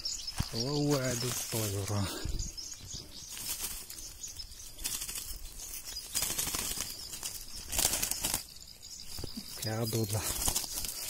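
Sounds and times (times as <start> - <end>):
bird flapping wings in bushes: 3.3 - 4.0, 4.8 - 8.5, 10.1 - 11.0.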